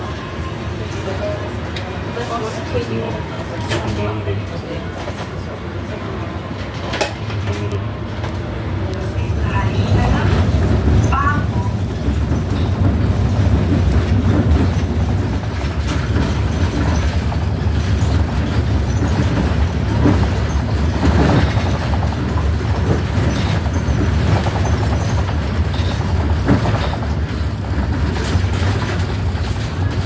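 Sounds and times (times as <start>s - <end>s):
knocks and rattles: 11.8s - 30.0s.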